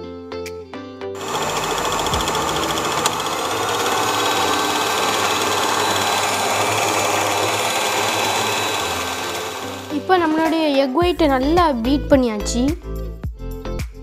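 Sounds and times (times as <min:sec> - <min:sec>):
electric stand mixer whisking: 0:01.2 - 0:10.7.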